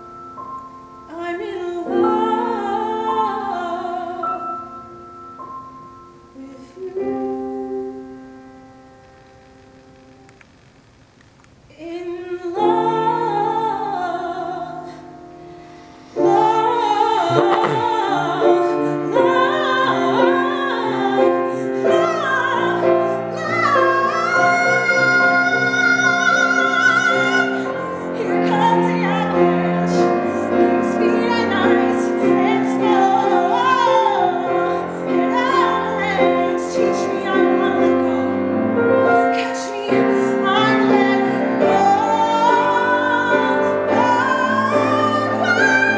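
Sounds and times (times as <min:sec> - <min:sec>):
piano accompaniment: 0:00.0 - 0:10.4
woman singing: 0:01.1 - 0:04.9, 0:06.3 - 0:08.5, 0:11.7 - 0:15.2, 0:16.2 - 0:45.9.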